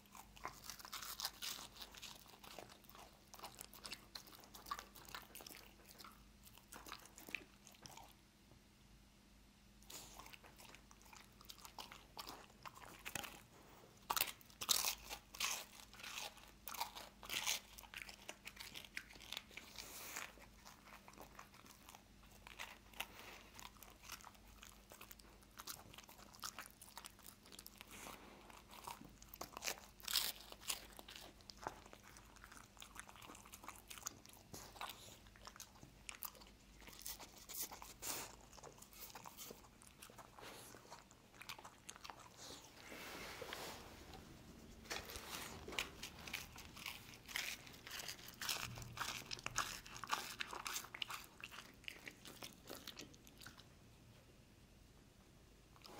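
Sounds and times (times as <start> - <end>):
dog crunching and chewing toast: 0.0 - 8.2, 9.8 - 53.7
dog licking: 44.8 - 53.7.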